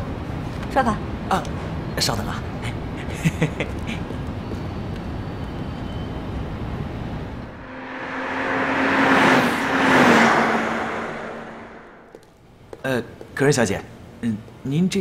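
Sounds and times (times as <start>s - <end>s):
low rumble: 7.4s - 12.1s
car driving past: 7.4s - 12.2s.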